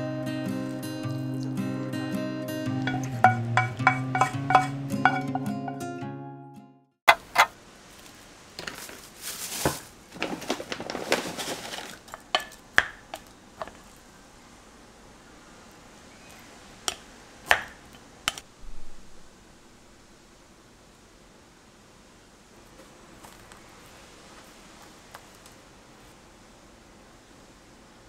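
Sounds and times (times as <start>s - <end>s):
rice paddle scraping metal pot: 2.8s - 5.8s, 7.1s - 7.6s.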